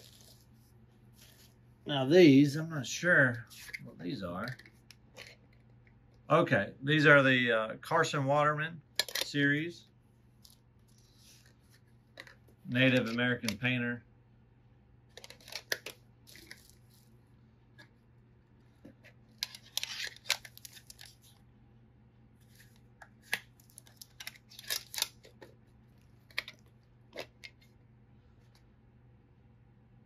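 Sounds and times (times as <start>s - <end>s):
plastic wrap crinkling: 15.2s - 17.0s, 19.3s - 21.4s.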